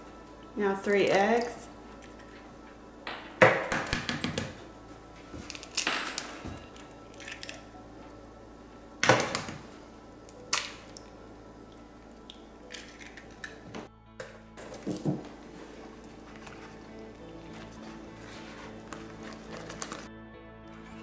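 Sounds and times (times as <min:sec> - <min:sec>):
soft background music: 0:00.0 - 0:21.0
eggs cracking on bowl: 0:05.4 - 0:07.7, 0:09.0 - 0:13.9.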